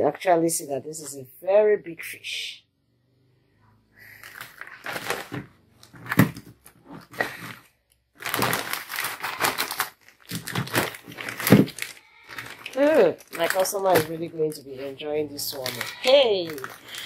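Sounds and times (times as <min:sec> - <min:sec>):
plastic bags crinkling: 0:04.2 - 0:17.0.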